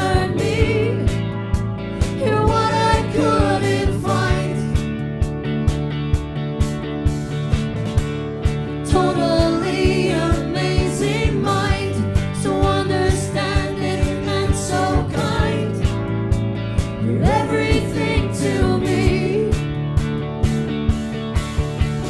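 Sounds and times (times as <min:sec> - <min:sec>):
woman singing: 0:00.0 - 0:01.2, 0:02.0 - 0:04.8, 0:08.8 - 0:15.9, 0:17.0 - 0:19.7
bass guitar: 0:00.0 - 0:22.0
electric guitar: 0:00.0 - 0:22.0
steady drum beat: 0:00.0 - 0:22.0.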